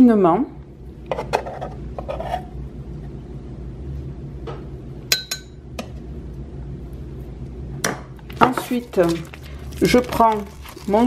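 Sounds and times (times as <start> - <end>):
steady low hum: 0.0 - 11.0
metal spoon clinking on ceramic bowl: 5.1 - 5.6.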